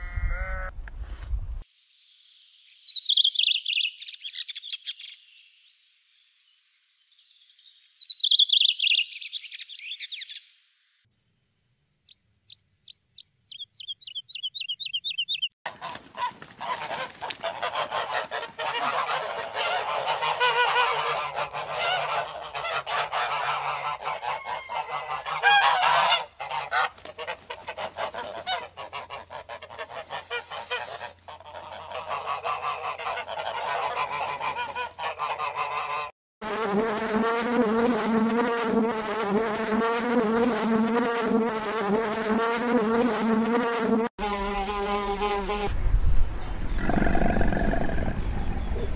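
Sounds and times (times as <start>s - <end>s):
bird chirping trill: 1.8s - 5.5s, 7.2s - 10.6s, 12.0s - 15.6s
ducks and geese honking and quacking: 15.7s - 36.1s
honeybees wing buzz: 29.8s - 31.2s, 36.4s - 45.7s.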